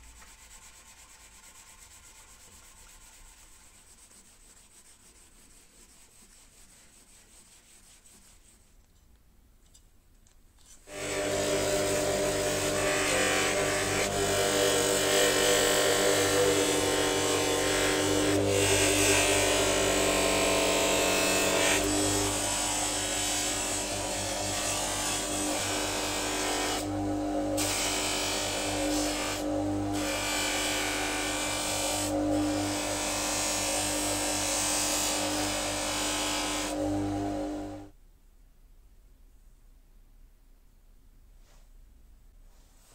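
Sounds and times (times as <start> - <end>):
bench grinder motor hum: 10.9 - 37.9.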